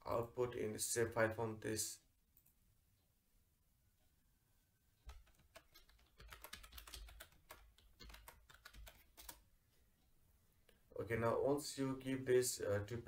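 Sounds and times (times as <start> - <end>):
keystrokes on computer keyboard: 5.1 - 9.4.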